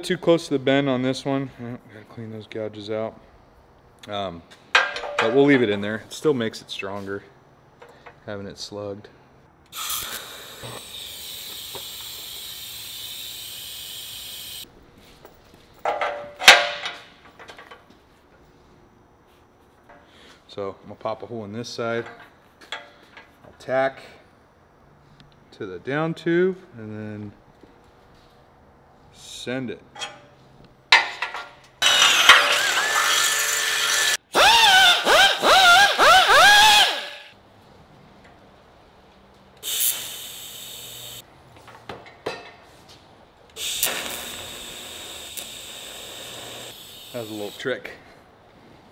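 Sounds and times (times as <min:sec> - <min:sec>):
pneumatic drill whining: 0:09.7 - 0:14.6, 0:31.8 - 0:37.3, 0:43.6 - 0:47.6
welding arc hissing: 0:09.7 - 0:14.7, 0:39.6 - 0:41.2, 0:43.6 - 0:47.8.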